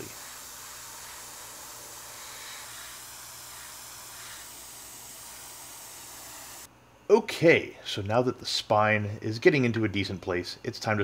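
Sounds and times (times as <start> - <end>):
airbrush spraying hiss: 0.0 - 6.7.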